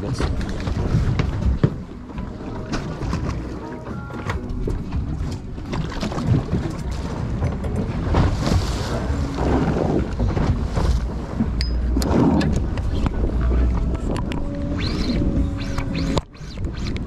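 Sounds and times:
water sloshing against boat hull: 0.0s - 17.0s
wind buffeting microphone: 4.7s - 17.0s.

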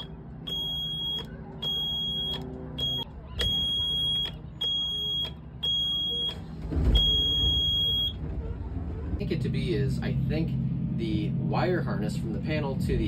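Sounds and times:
alarm buzzer beeping: 0.0s - 8.2s
engine starting rumble: 5.7s - 9.6s.

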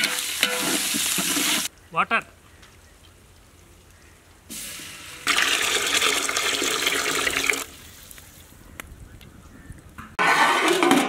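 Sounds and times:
water pouring into metal pot: 5.2s - 7.8s.

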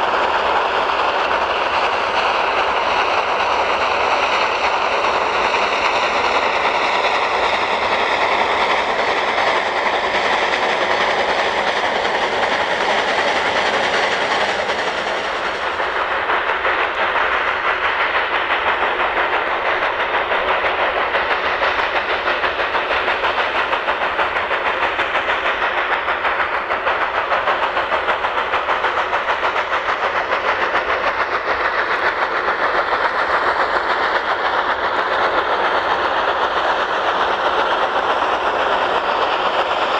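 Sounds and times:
steam locomotive exhaust beating: 0.0s - 39.9s
train rolling: 0.0s - 39.9s.

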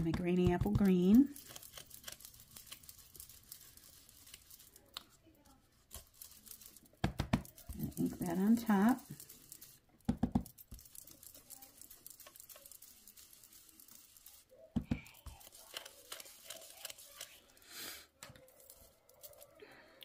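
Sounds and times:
brush scratching on paper: 0.3s - 19.5s.

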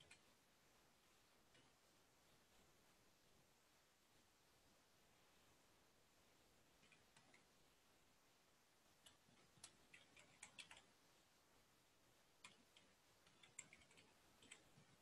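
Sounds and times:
keyboard typing: 0.0s - 0.3s, 6.8s - 7.5s, 9.0s - 11.0s, 12.4s - 15.0s.

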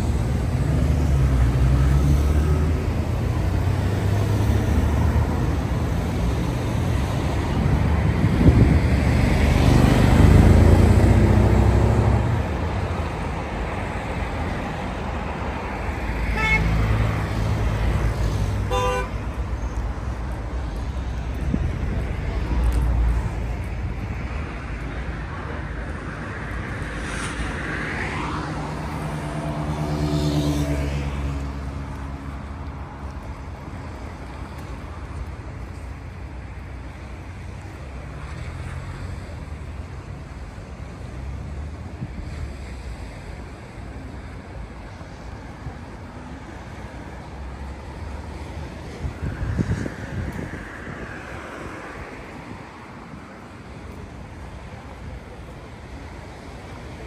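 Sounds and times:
vehicle engine rumbling past: 0.0s - 12.7s, 25.5s - 32.3s
passing engine hum: 0.0s - 57.0s
wind and sea rumble: 2.6s - 57.0s
car horn toot: 16.3s - 16.8s, 18.7s - 19.2s.

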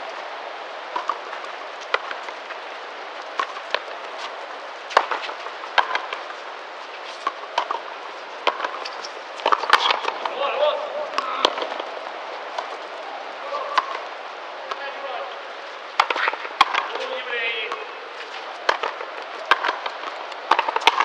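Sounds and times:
background hiss: 0.0s - 21.0s
rubber ball struck by rackets: 18.6s - 21.0s.

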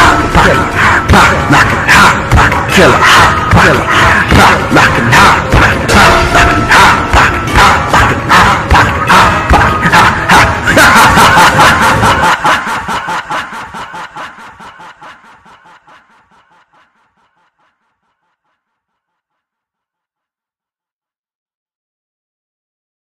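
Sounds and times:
rapid rhythmic laugh: 0.0s - 18.4s.

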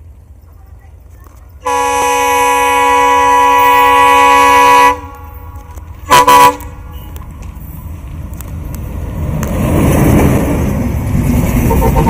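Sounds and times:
low rumble of train: 0.0s - 12.0s
locomotive horn blasts: 1.6s - 7.2s.

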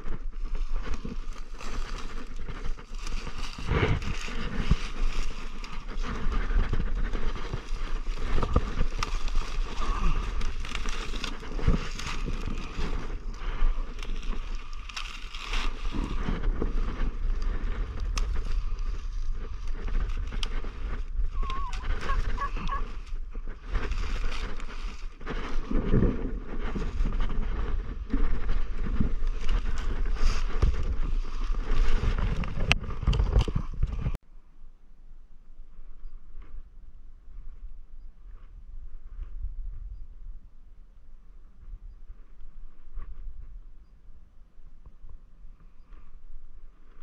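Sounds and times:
dry brush crackling and snapping: 0.0s - 33.7s
wind on microphone: 0.0s - 34.2s, 35.6s - 47.0s.

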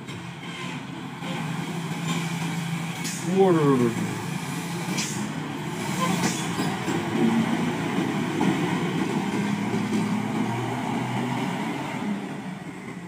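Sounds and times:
truck diesel engine running: 0.0s - 13.0s
short air hisses: 4.9s - 5.3s.

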